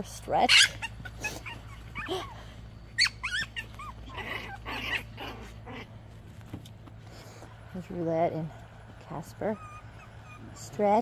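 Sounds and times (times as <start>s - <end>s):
puppies yipping and squeaking: 0.3s - 6.8s, 9.1s - 11.0s.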